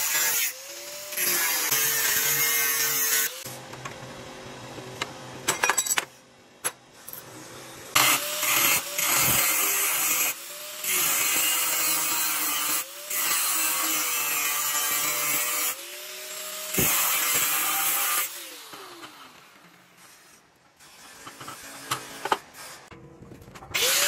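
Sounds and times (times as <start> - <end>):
angle grinder cutting sheet steel: 0.0 - 3.5, 7.9 - 22.9, 23.8 - 24.0.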